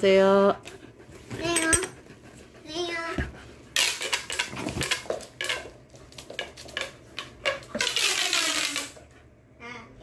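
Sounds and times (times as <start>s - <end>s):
puppy claws clicking on floor: 3.8s - 9.0s.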